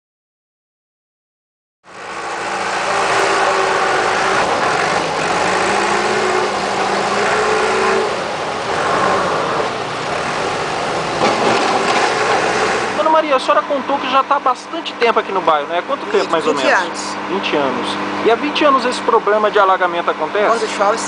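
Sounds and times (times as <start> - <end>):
diesel engine running: 1.9 - 21.0
steady noisy hiss: 1.9 - 21.0.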